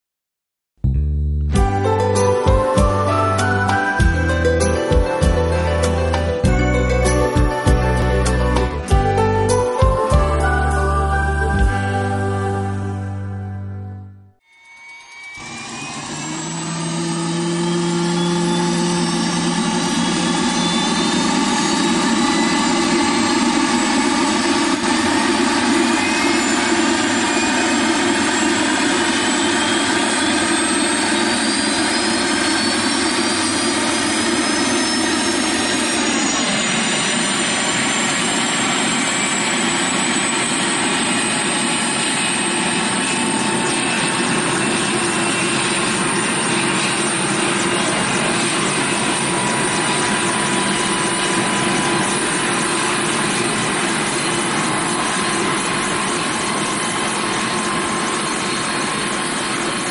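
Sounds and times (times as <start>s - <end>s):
turbine engine whine: 0.9s - 13.5s, 14.5s - 59.9s.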